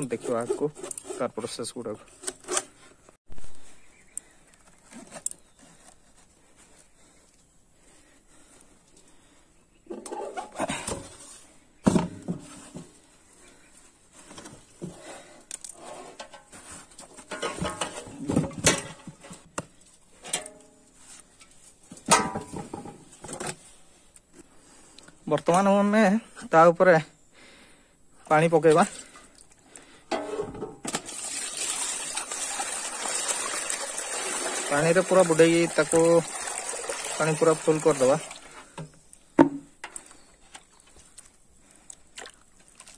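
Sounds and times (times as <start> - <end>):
thump: 39.4 - 39.7.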